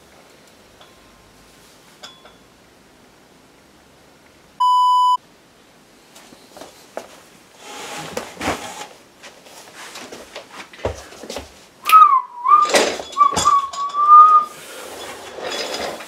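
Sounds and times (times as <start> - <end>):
knocks and thumps of movement: 8.0 - 11.6, 12.5 - 14.4
person whistling: 11.8 - 14.5.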